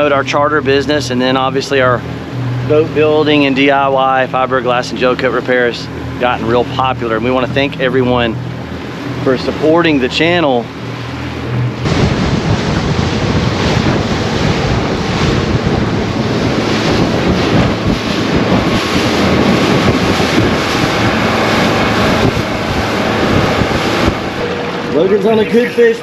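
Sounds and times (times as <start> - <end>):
outboard engine droning: 0.0 - 26.0
water rushing along boat hull: 0.0 - 26.0
wind noise on microphone: 10.2 - 26.0.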